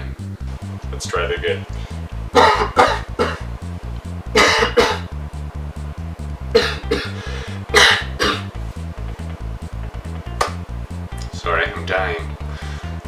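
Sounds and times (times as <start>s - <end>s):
background music with low beat: 0.0s - 13.0s
man coughing: 2.4s - 3.5s, 4.4s - 5.1s, 6.6s - 8.5s.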